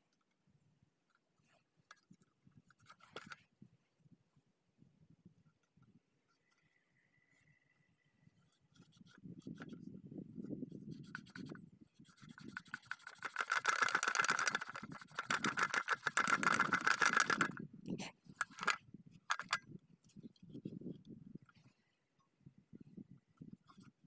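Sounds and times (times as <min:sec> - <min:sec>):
scrubbing and scraping on metal: 0:10.9 - 0:17.6.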